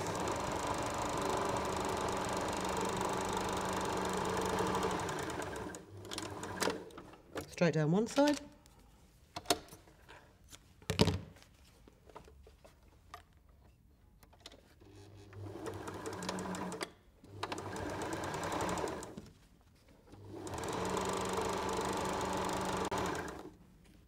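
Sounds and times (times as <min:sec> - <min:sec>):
sewing machine stitching: 0:00.0 - 0:07.0, 0:14.8 - 0:19.2, 0:20.1 - 0:23.6.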